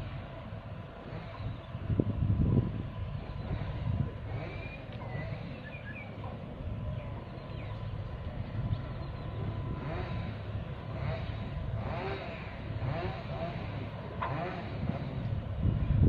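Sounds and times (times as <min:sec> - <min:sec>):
steady low rumble: 0:00.0 - 0:16.0
bird chirps: 0:04.5 - 0:09.5.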